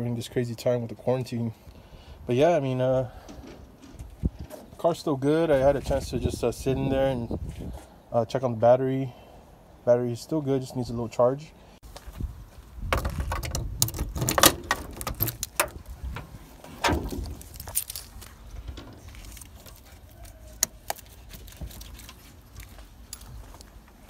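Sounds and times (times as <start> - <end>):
trunk lock clicking: 13.0 - 17.5
car keys jangling: 13.3 - 15.8, 17.0 - 18.3.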